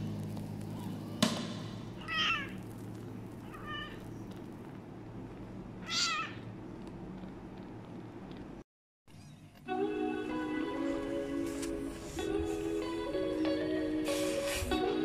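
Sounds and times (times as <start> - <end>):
kitten mewing: 2.0 - 2.6, 3.4 - 4.1, 5.8 - 6.5.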